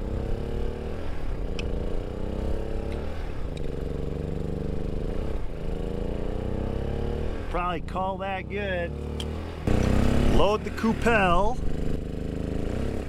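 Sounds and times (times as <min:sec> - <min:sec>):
small engine running: 0:08.3 - 0:13.0.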